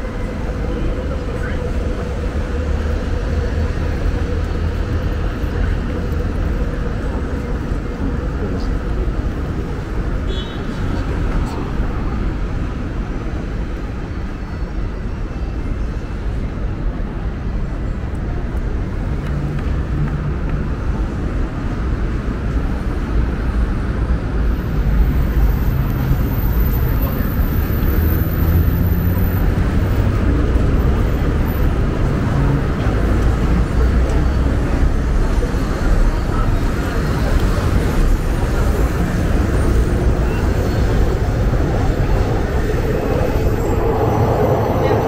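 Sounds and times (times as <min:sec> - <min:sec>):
passing cars rumbling: 0:18.8 - 0:45.0.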